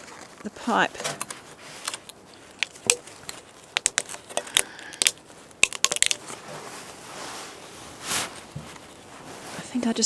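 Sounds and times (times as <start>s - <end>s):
metal stove pipe crinkling and scraping: 0.0s - 10.0s.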